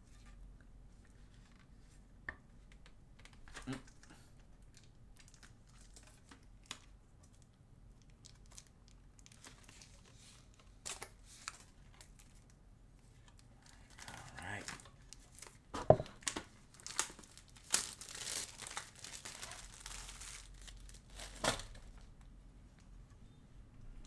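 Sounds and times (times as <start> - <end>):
sticker crinkling and tearing: 16.2 - 21.9.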